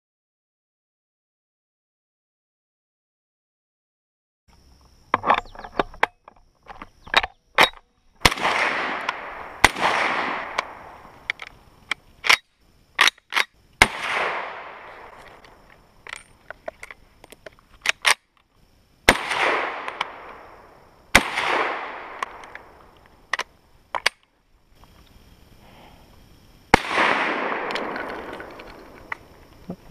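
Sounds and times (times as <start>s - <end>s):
rifle shots with echo: 8.2s - 11.2s, 13.8s - 15.2s, 19.1s - 22.8s, 26.7s - 29.2s
rifle loading clicks: 10.5s - 12.4s, 13.0s - 13.5s, 14.9s - 18.5s, 19.8s - 20.4s, 22.1s - 24.2s, 27.6s - 29.6s.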